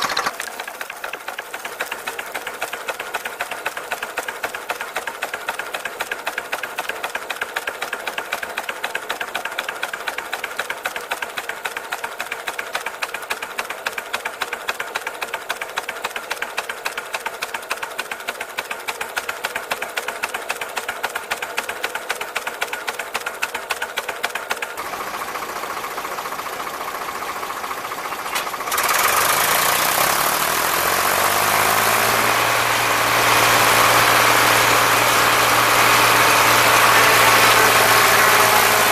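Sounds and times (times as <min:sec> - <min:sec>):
steam engine mechanical clatter: 0:00.0 - 0:38.9
tractor engine running: 0:00.0 - 0:38.9.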